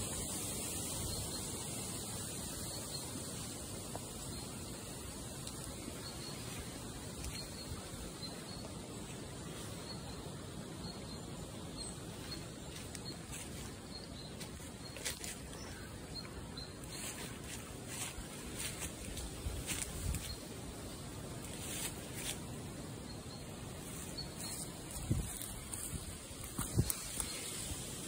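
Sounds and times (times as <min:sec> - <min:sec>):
outdoor background noise: 0:00.0 - 0:28.0
footsteps crunching on leaf litter: 0:12.2 - 0:20.5, 0:21.4 - 0:22.5, 0:23.8 - 0:28.0
faint high chirp: 0:23.0 - 0:27.6.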